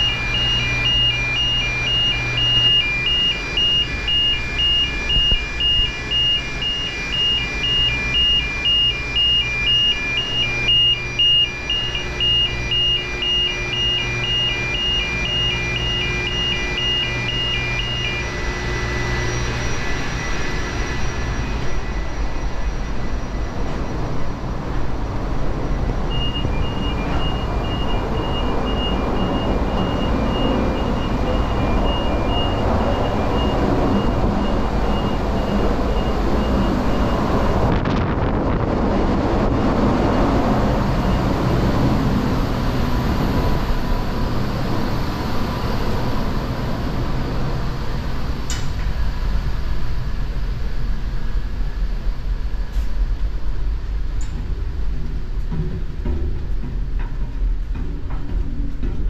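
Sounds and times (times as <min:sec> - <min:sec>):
engine room machinery din: 0:00.0 - 0:59.0
faint electronic beeping: 0:25.8 - 0:37.6.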